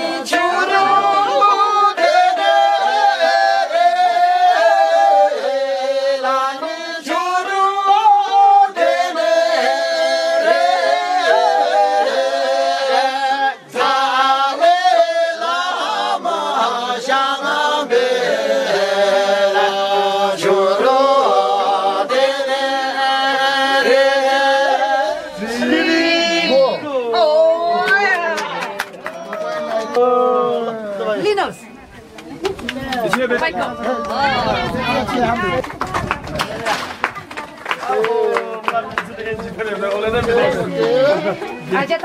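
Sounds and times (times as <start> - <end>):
unaccompanied choir singing: 0.0 - 27.8, 40.1 - 41.9.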